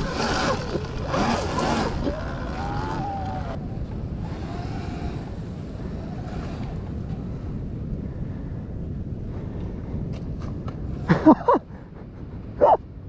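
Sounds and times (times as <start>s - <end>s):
electric motor whine: 0.0s - 7.4s
wind on microphone: 0.0s - 13.0s.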